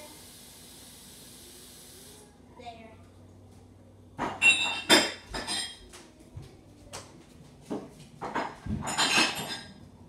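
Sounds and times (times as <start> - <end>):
utensils and dishes clinking: 4.2 - 5.9, 7.7 - 10.0.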